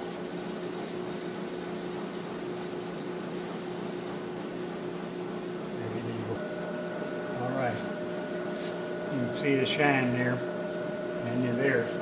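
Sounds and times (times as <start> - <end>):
wood lathe humming: 6.4 - 12.0.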